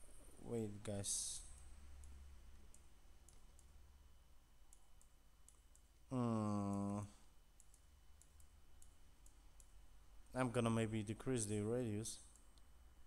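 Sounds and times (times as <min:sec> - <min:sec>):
computer mouse clicks: 0:01.5 - 0:03.8, 0:04.7 - 0:05.9, 0:07.6 - 0:09.8
man humming: 0:06.1 - 0:07.2.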